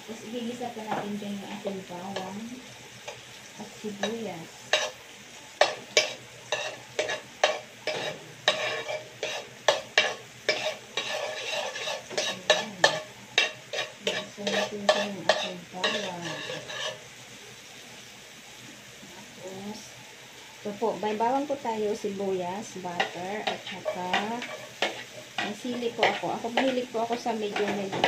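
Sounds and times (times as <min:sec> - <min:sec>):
garlic sizzling: 0:00.0 - 0:28.0
spoon scraping a frying pan: 0:03.0 - 0:03.3, 0:03.9 - 0:17.1, 0:22.8 - 0:28.0.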